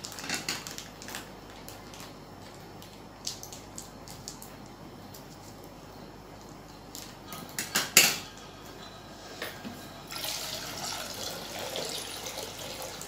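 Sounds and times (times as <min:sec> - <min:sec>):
milk pouring into steel pot: 0:10.1 - 0:13.0.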